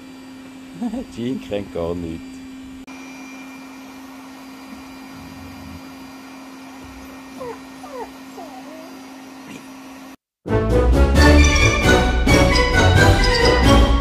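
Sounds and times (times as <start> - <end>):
vacuum cleaner humming: 0.0 - 10.2
puppies whimpering: 6.9 - 9.7
orchestral music: 10.5 - 14.0.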